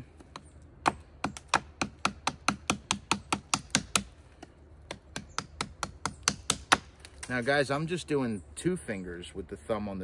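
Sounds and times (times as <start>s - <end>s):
knife chopping hard wood: 0.3s - 4.2s, 4.9s - 7.0s.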